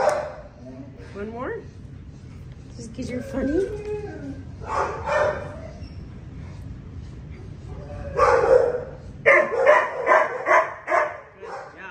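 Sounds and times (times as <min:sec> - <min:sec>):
dog barking: 0:00.0 - 0:00.5, 0:04.7 - 0:05.5, 0:08.2 - 0:11.8.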